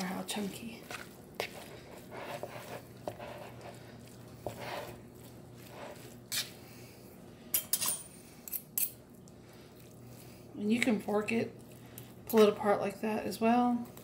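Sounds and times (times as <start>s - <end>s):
meat squishing: 0.0s - 7.0s, 9.0s - 12.6s
faint steady hum: 0.0s - 14.0s
fork scraping a bowl: 0.8s - 6.6s.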